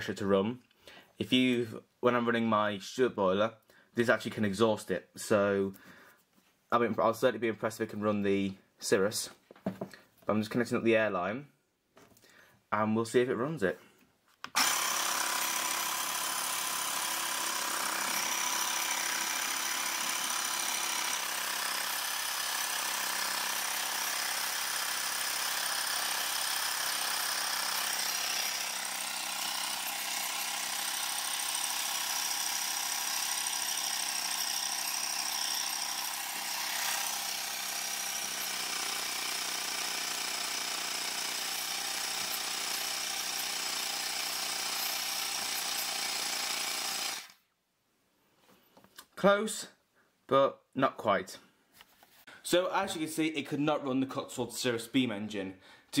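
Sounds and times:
electric air compressor running: 14.6 - 47.4.

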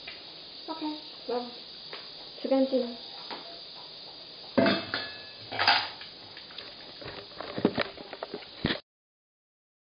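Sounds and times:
bowl clanking: 4.6 - 8.2.

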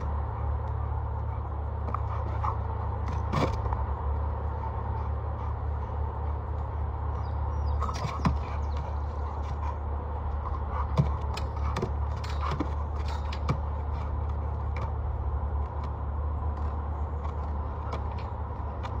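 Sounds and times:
steady low rumble: 0.0 - 19.0.

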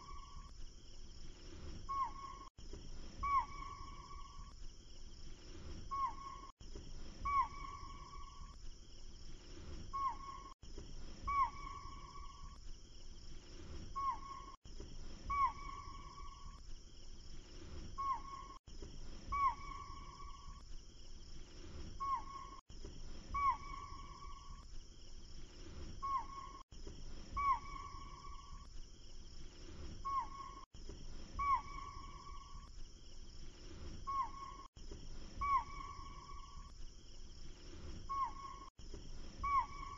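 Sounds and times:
whistled animal call: 3.2 - 4.5, 7.2 - 8.4, 11.2 - 12.6, 15.2 - 16.6, 19.3 - 20.6, 23.3 - 24.6, 27.3 - 28.7, 31.4 - 32.7, 34.1 - 34.7, 35.4 - 36.7, 38.1 - 38.7, 39.4 - 39.9.

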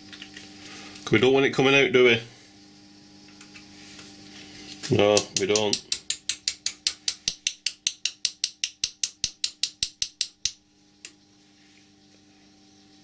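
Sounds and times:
hammer tapping on metal pin: 5.1 - 10.6.

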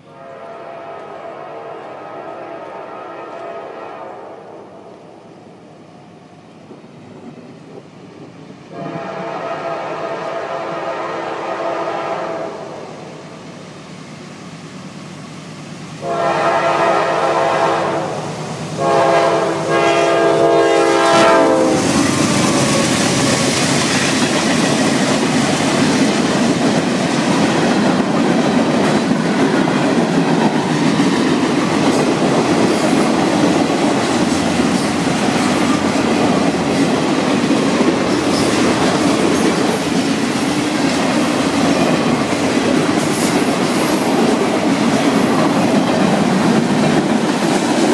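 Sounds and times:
train horn blasts: 0.0 - 5.2, 8.7 - 13.0, 16.0 - 23.4
train wheel clatter on rails: 21.6 - 47.9.

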